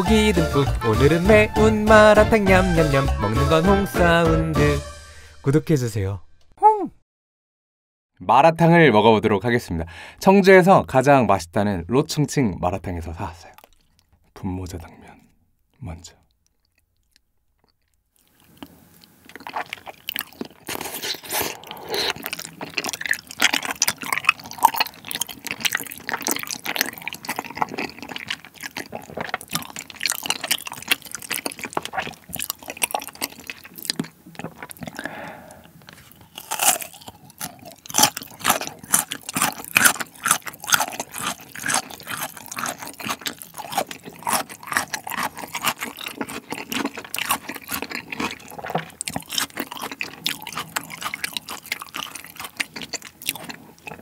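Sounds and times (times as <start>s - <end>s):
crunchy bites: 16.5s - 54.0s
noodles slurped and chewed: 16.5s - 54.0s
wet sticky mouth clicks: 31.7s - 36.3s.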